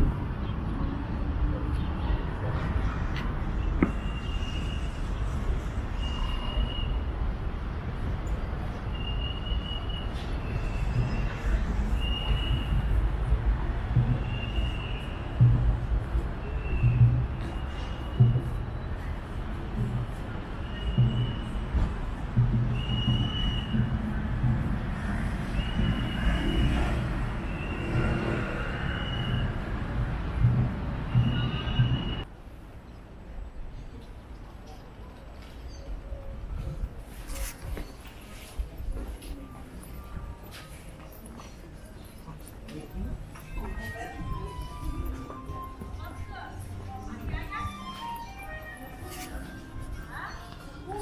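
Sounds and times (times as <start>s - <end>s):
traffic rumble: 0.0s - 51.0s
high whistling tone: 8.9s - 13.0s, 22.7s - 24.0s, 25.4s - 26.8s, 27.4s - 29.8s.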